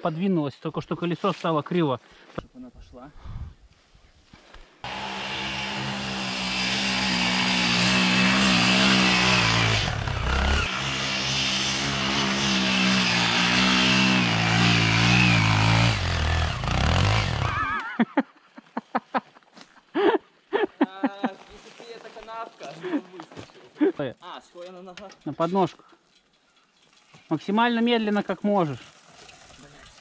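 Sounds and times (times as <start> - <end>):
dirt bike engine revving: 4.8 - 17.8.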